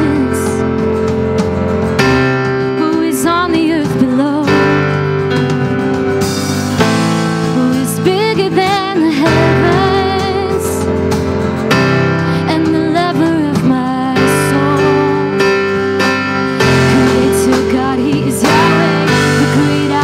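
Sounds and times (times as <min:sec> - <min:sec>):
person singing with vibrato: 0:00.0 - 0:00.8, 0:07.6 - 0:10.8, 0:12.3 - 0:20.0
guitar: 0:00.0 - 0:20.0.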